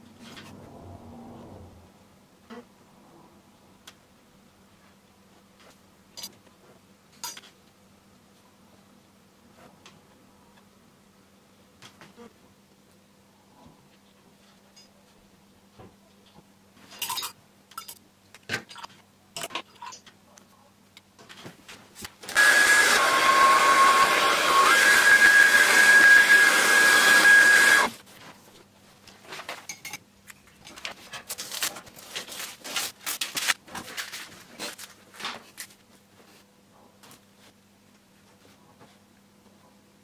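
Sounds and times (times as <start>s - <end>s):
hair dryer blowing: 22.3s - 28.0s.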